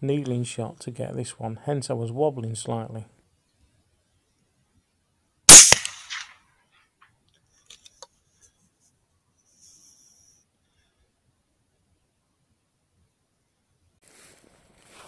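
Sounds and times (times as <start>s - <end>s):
rifle shot: 5.5s - 6.4s.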